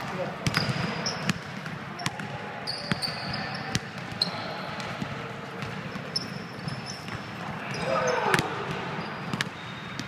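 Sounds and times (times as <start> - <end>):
ball bouncing: 0.4 - 10.0
shoes squeaking on gym floor: 2.0 - 4.6, 6.0 - 10.0.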